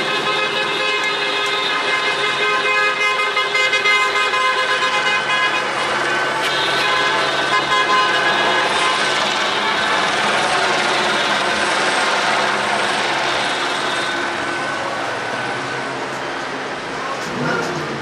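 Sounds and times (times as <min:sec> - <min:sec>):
car horns honking: 0:00.0 - 0:11.7.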